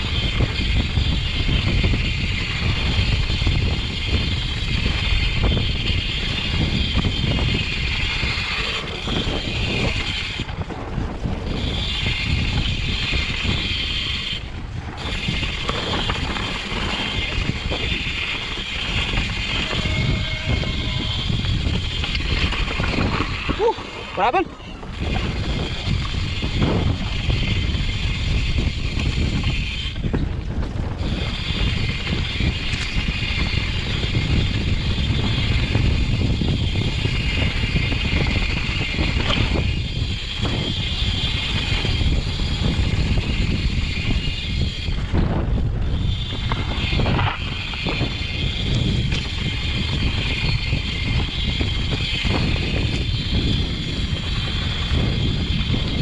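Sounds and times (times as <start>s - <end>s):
bike tyre and trail noise: 0.0s - 56.0s
wind rumbling on microphone: 0.0s - 56.0s
steady high buzz: 15.1s - 26.9s.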